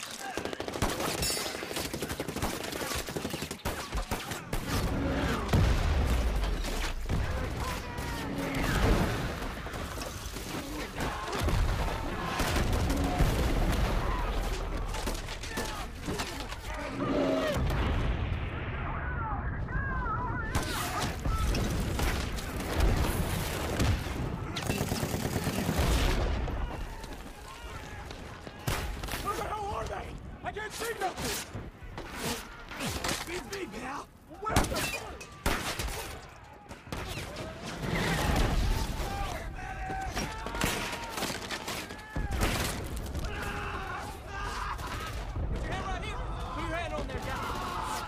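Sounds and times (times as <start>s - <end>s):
rifle and machine-gun fire: 0.0s - 16.0s, 20.5s - 26.8s
heavy explosions: 4.5s - 10.0s, 17.4s - 27.0s.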